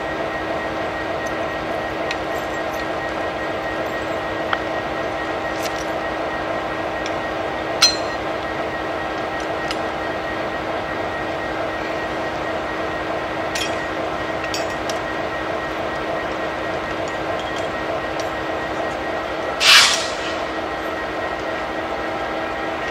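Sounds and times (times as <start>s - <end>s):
diesel locomotive humming: 0.0s - 22.9s.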